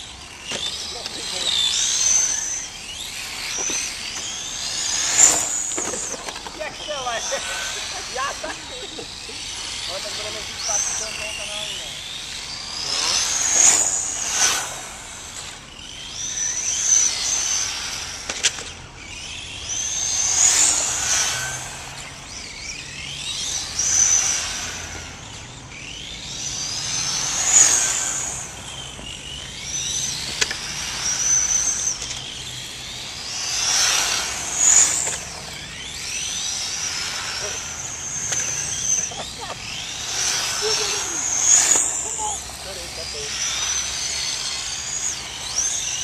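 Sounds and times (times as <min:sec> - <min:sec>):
remote control car motors whining: 0:00.0 - 0:46.0.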